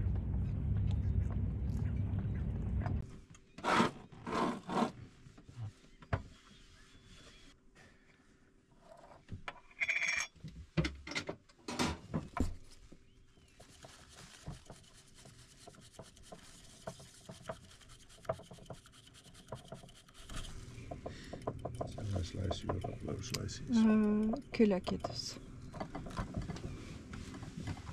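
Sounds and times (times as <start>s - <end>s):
bamboo whisk scratching in bowl: 13.6s - 20.6s
tin clicks and knocks: 21.4s - 23.4s.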